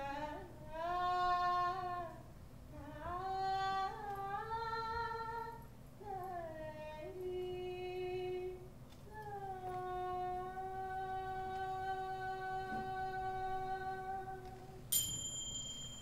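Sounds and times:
woman singing wordless melody: 0.0s - 14.9s.

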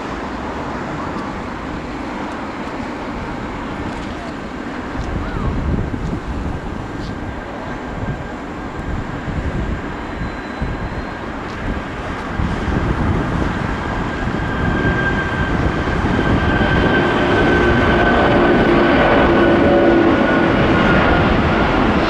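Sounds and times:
engine whine: 0.0s - 22.0s
jet engines rumbling: 0.0s - 22.0s.

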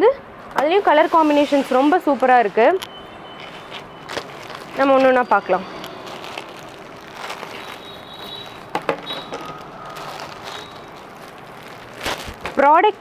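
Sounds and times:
cloth rustling: 3.4s - 13.0s.

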